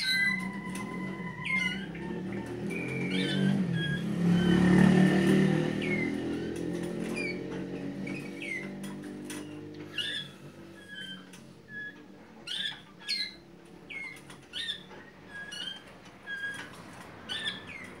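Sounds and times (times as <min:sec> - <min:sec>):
canaries calling: 0:00.0 - 0:18.0.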